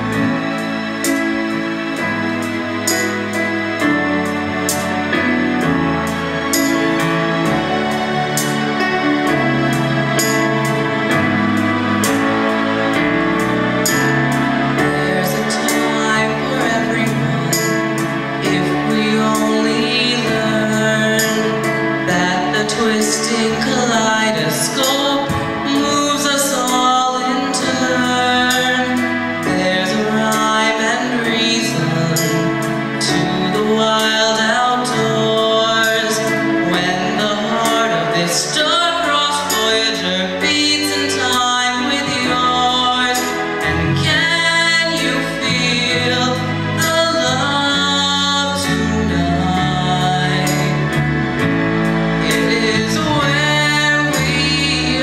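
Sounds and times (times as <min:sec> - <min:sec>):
instrumental accompaniment with beat: 0:00.0 - 0:55.0
boy singing into microphone: 0:14.8 - 0:51.1, 0:52.2 - 0:55.0.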